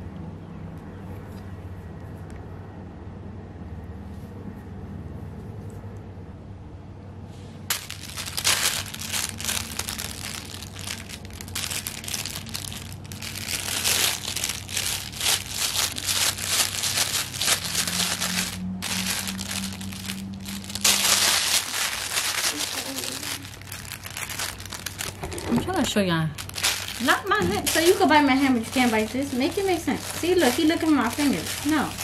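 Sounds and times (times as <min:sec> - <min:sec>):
fabric toy crinkling: 0:07.7 - 0:32.0.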